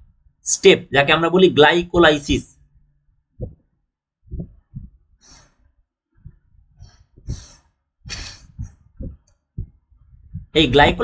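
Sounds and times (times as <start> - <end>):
soft low thumps: 1.9 - 5.2, 6.2 - 11.0
close breathing: 4.3 - 10.5.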